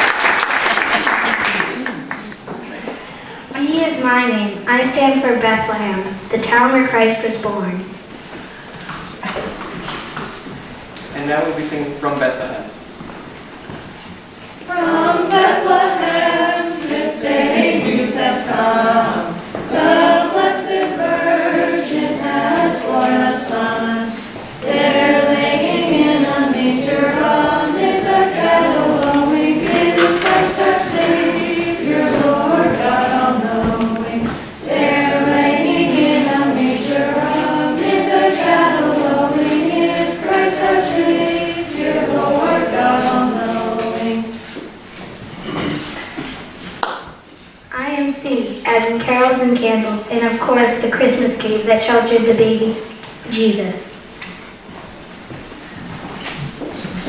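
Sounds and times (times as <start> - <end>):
children singing unaccompanied: 14.6 - 44.6.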